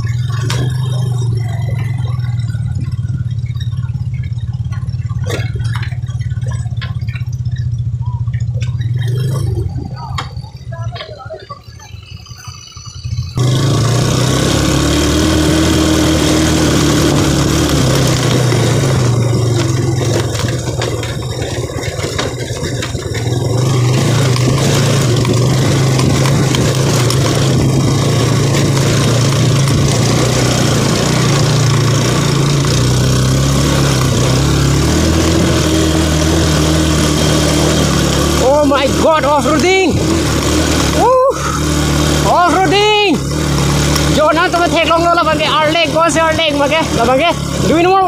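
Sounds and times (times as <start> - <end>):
motorcycle engine running: 0.0 - 48.0.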